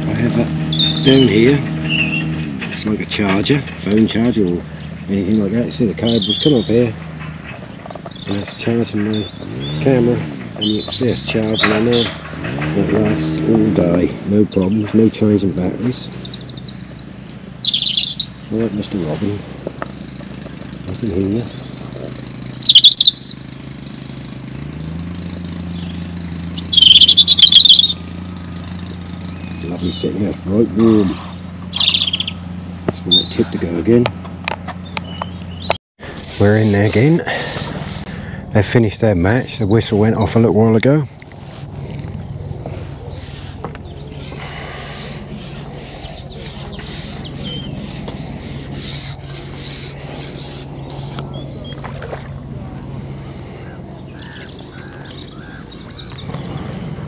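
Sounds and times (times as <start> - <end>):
robin singing trilling notes: 0.0 - 19.1, 20.8 - 24.1, 24.8 - 34.0, 36.4 - 56.9
fishing pole rubbing and scraping: 36.0 - 38.1, 41.1 - 54.8
low steady drone: 36.0 - 57.0.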